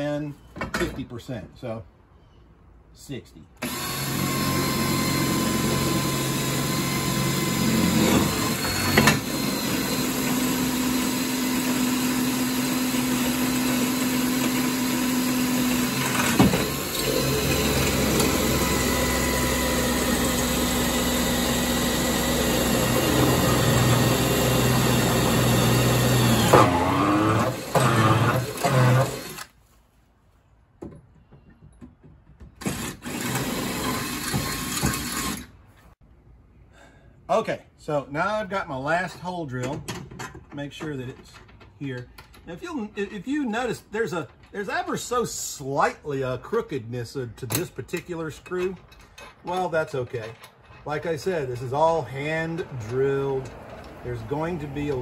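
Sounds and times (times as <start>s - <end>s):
electric drill boring metal: 3.6s - 29.5s, 32.6s - 35.5s.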